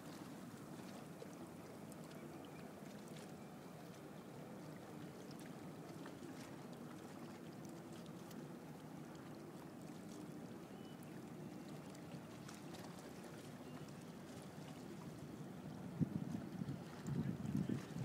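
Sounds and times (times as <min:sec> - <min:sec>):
water lapping and splashing: 0:00.0 - 0:18.0.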